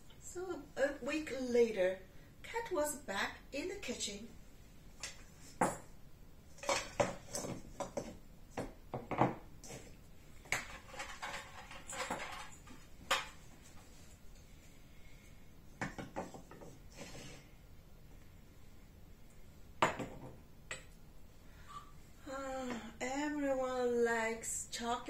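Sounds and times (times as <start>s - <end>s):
kitchenware knocking on wooden table: 7.0s - 9.4s, 19.8s - 20.4s.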